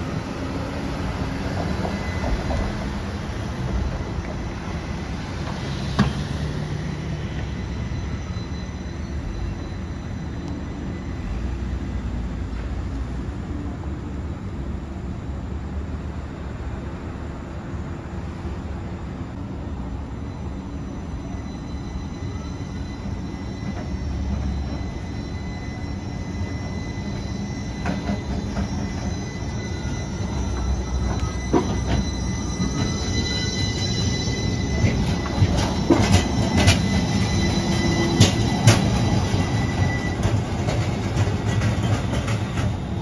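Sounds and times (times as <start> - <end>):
tram rumbling past: 0.0 - 43.0
wheel squeal: 0.2 - 11.8, 20.2 - 43.0
wheels clacking over rails: 26.4 - 43.0.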